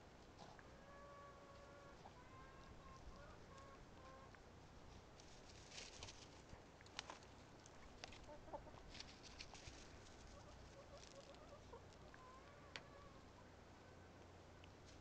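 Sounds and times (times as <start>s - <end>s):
hens clucking: 0.4s - 4.4s, 7.8s - 13.5s.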